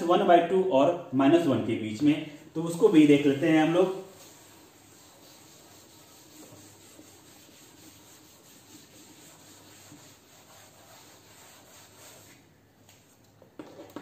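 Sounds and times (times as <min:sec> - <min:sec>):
duster rubbing chalkboard: 0:02.6 - 0:12.5.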